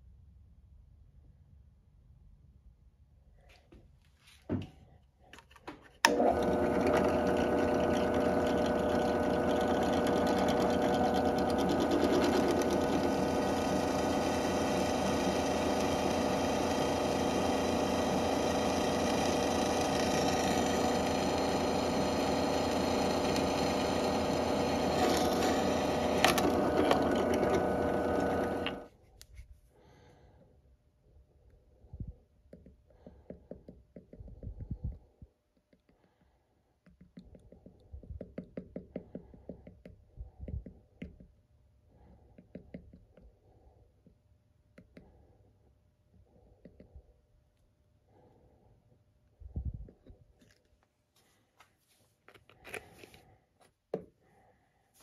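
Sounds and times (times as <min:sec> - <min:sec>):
drill press running: 0:06.0 - 0:28.9
drill bit drilling into metal: 0:06.1 - 0:28.9.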